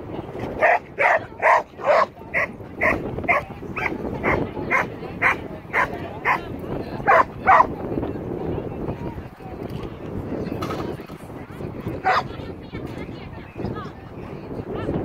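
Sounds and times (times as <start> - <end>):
dog barking: 0.6 - 6.4, 7.1 - 7.7, 12.0 - 12.3.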